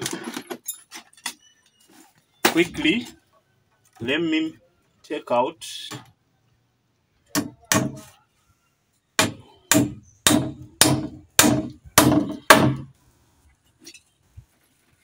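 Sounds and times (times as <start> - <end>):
hammer striking wooden pole: 7.3 - 8.1, 9.2 - 12.9.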